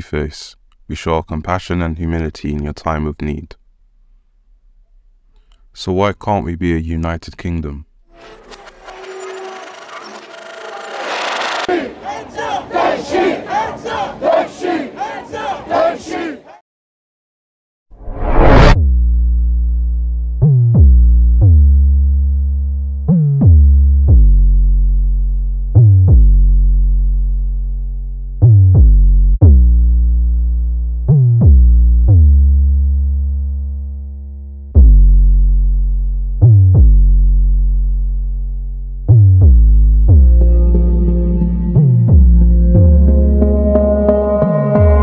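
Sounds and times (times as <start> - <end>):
deep bass notes: 18.0 - 45.0.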